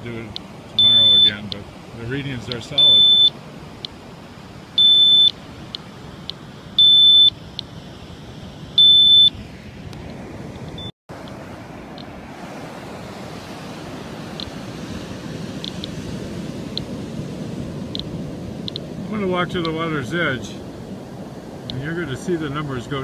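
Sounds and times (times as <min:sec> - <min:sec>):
wind hiss: 0:00.0 - 0:23.0
geiger counter alarm beeping: 0:00.8 - 0:01.5, 0:02.7 - 0:03.4, 0:04.8 - 0:05.4, 0:06.8 - 0:07.4, 0:08.8 - 0:09.3
surf: 0:11.1 - 0:23.0.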